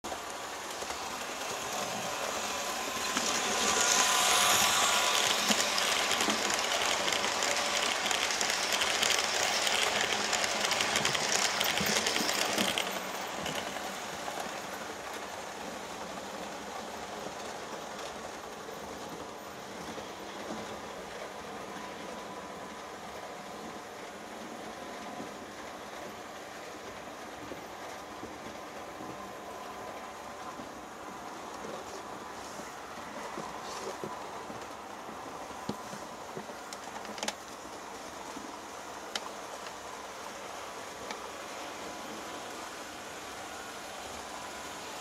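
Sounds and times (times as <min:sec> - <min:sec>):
model train motor hum: 0:00.1 - 0:14.9
wheels rattling over rail joints: 0:00.1 - 0:22.3.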